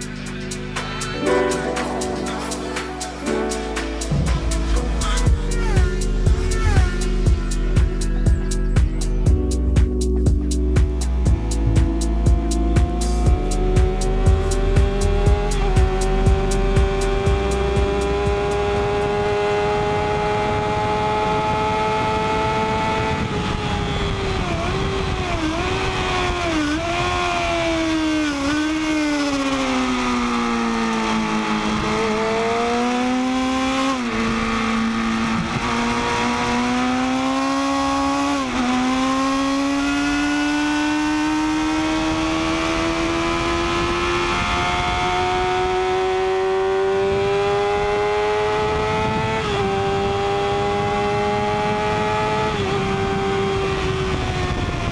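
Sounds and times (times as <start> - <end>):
motorcycle engine at racing pace: 0.0 - 1.2, 4.1 - 54.9
wind on microphone: 20.0 - 29.0, 47.8 - 54.9.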